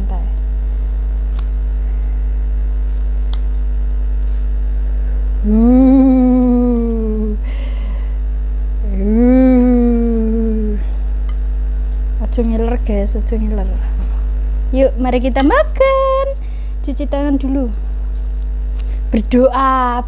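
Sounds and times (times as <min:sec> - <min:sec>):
steady low hum: 0:00.0 - 0:20.0
woman humming: 0:05.4 - 0:08.1, 0:08.8 - 0:11.0.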